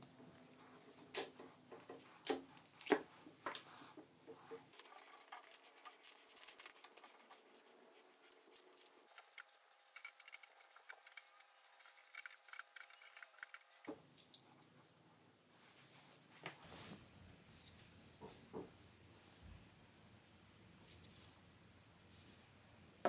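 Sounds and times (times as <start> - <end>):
liquid dripping and splashing: 4.7 - 14.8.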